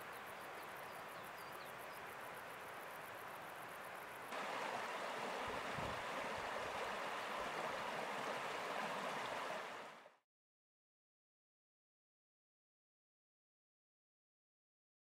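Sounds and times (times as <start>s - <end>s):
stream running over stones: 0.0s - 10.1s.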